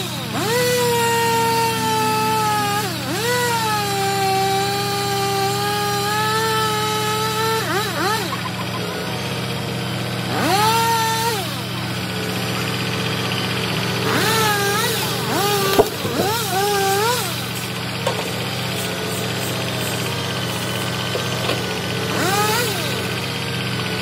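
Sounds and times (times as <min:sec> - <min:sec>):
hydraulic whine: 0:00.0 - 0:24.0
diesel truck engine idling: 0:08.2 - 0:24.0.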